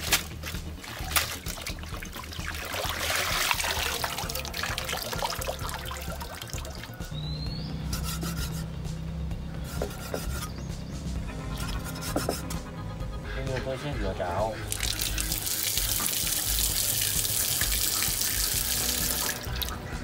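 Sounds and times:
rush of water: 0.0 - 7.0, 14.7 - 19.8
water sloshing in a basin: 0.0 - 7.2, 14.6 - 20.0.

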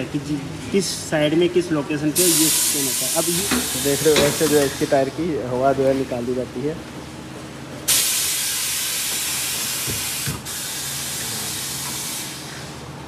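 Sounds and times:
air hissing out of a tyre: 2.2 - 5.0, 7.9 - 12.9.

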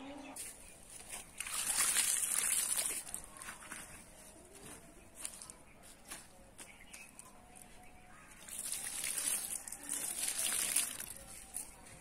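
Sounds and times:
water splashing onto scraps: 1.0 - 3.9, 8.3 - 12.0.

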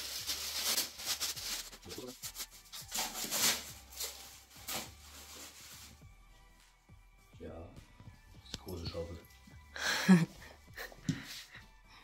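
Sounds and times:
packing wrap crinkling: 0.0 - 6.0.

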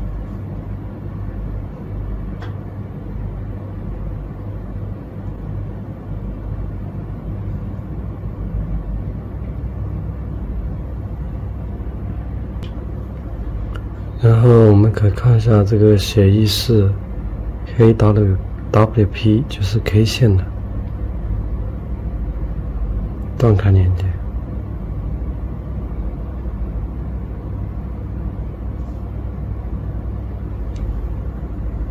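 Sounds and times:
low hum and rumble: 0.0 - 31.9.

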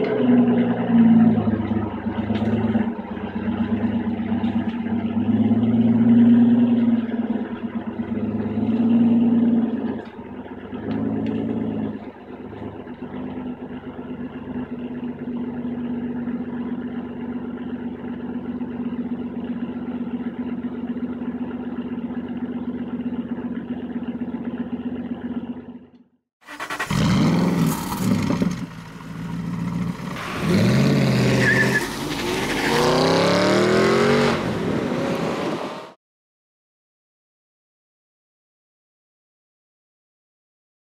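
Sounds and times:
car driving by revving: 0.0 - 16.7, 26.7 - 36.0
car engine idling: 0.0 - 31.2.

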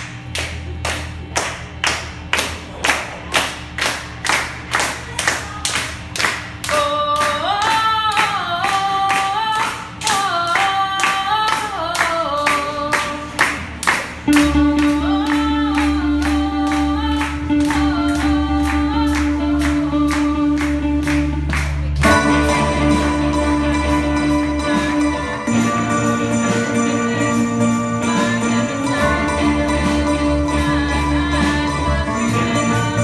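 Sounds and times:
rhythmic hand-clapping: 0.0 - 33.0
rock band with electric guitars: 14.2 - 33.0
person singing: 22.0 - 33.0.

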